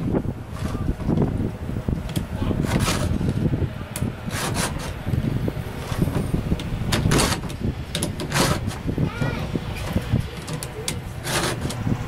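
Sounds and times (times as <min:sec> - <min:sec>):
steady low rumble: 0:00.0 - 0:12.0
file rasping across chain teeth: 0:04.3 - 0:05.0, 0:08.2 - 0:08.8, 0:10.5 - 0:11.8.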